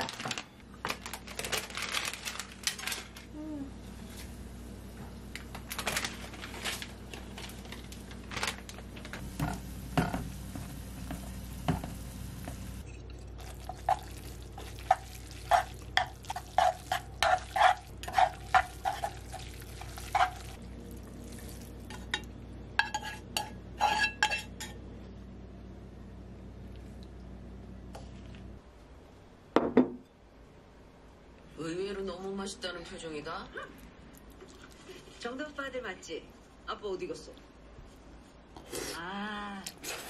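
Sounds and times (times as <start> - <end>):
chopsticks scraping frying pan: 13.8 - 20.6, 22.8 - 24.7.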